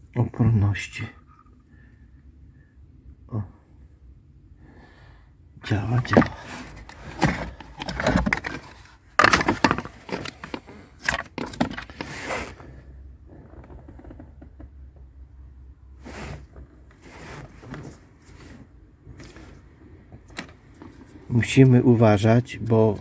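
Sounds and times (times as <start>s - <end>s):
wiring and plastic connectors handled: 5.8s - 12.3s.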